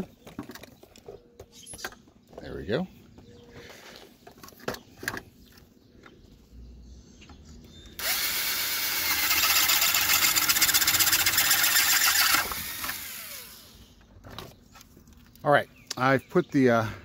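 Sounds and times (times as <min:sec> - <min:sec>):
electric drill boring through plastic: 0:08.0 - 0:13.8.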